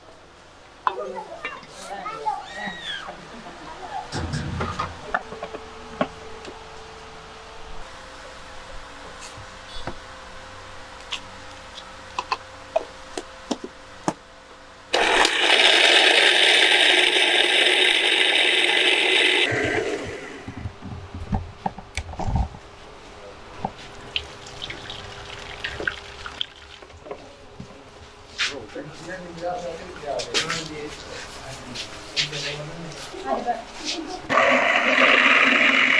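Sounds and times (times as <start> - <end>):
electric blender running: 14.9 - 20.7, 34.3 - 35.9.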